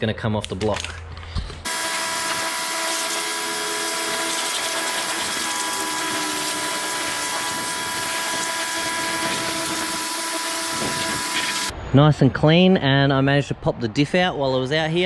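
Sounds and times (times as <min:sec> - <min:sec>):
pressure washer pump whine: 0:01.7 - 0:11.7
water jet hissing: 0:01.7 - 0:11.7.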